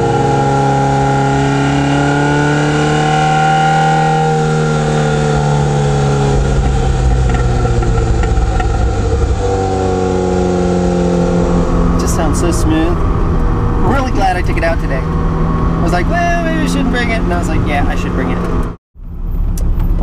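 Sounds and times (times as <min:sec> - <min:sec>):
car engine running: 0:00.0 - 0:20.0
low rumble: 0:04.0 - 0:20.0.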